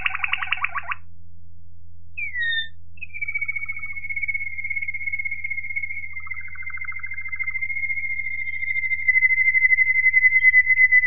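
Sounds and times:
canary singing: 0.0 - 1.0, 2.2 - 4.9.

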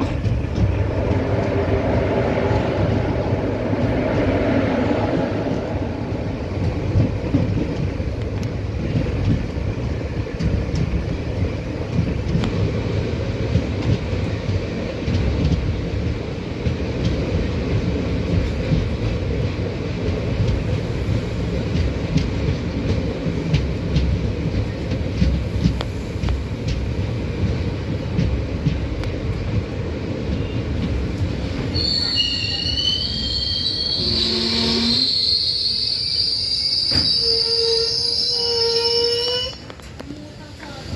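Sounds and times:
train rumbling on rails: 0.0 - 40.9
wheels clicking over rail joints: 5.1 - 20.8, 21.6 - 31.8
high-pitched squeal: 31.7 - 39.6.

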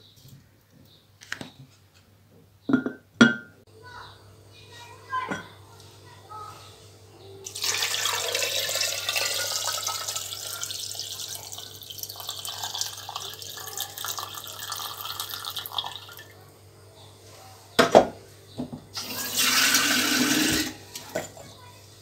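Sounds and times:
water pouring into a pot: 7.5 - 16.4, 19.0 - 21.0.

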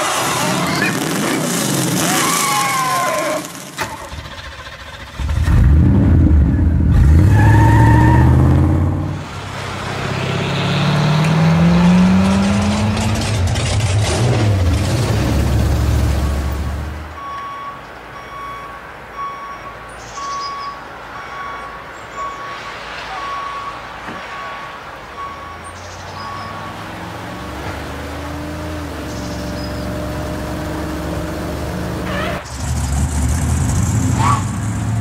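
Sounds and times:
truck engine running: 4.0 - 19.2, 24.8 - 35.0
truck reversing alarm beeping: 16.0 - 30.8.

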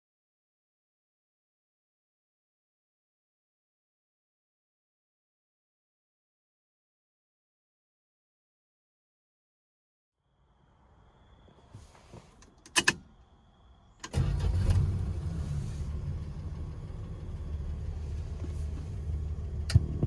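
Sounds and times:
car engine starting and idling: 14.0 - 20.0.

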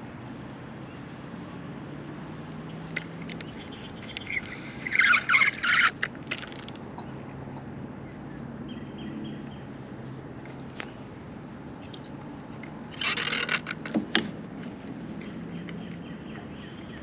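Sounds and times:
bird's harsh rasping calls: 3.5 - 6.1.

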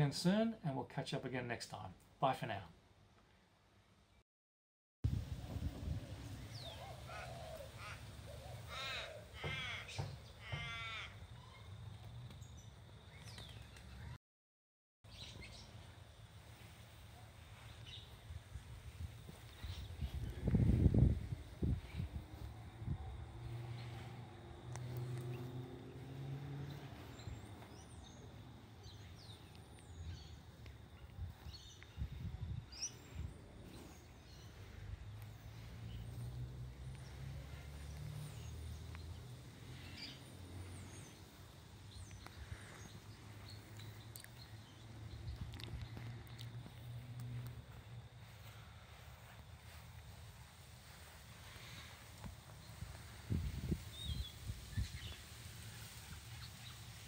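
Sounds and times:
small birds chirping: 5.8 - 14.2, 15.0 - 57.0
crow cawing: 7.1 - 11.2.

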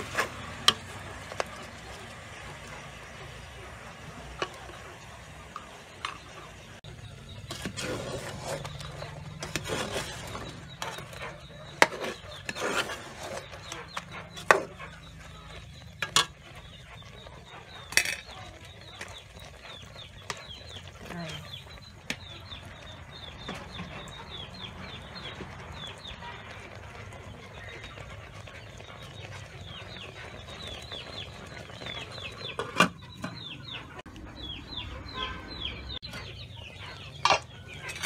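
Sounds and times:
metal spoon stirring in pot: 0.0 - 34.0, 36.0 - 38.0.

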